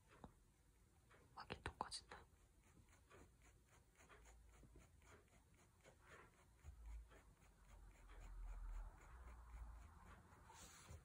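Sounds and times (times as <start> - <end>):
pen scratching on paper: 2.6 - 11.0.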